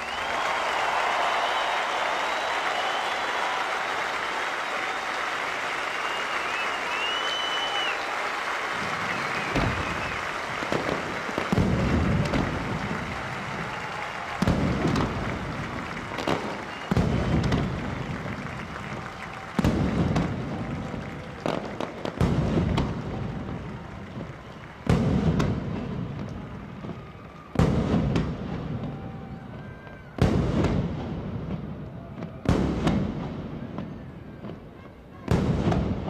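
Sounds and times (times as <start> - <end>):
fireworks booming: 8.7 - 36.0.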